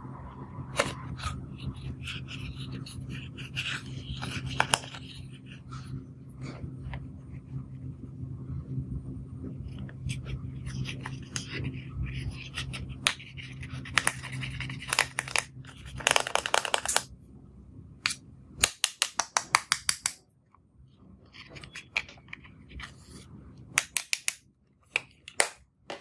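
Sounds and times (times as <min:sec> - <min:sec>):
low hum: 0:00.0 - 0:18.7, 0:20.2 - 0:25.9
stick scraping powder in compact: 0:00.8 - 0:05.9, 0:10.0 - 0:17.1, 0:21.4 - 0:24.3
stick tapping plastic: 0:13.9 - 0:17.1, 0:18.1 - 0:20.2.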